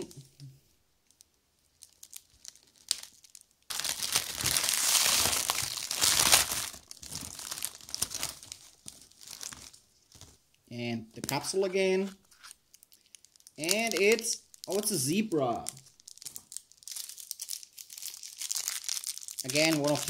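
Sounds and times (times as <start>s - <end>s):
foil wrapper crinkling: 1.1s - 10.4s, 12.3s - 20.0s.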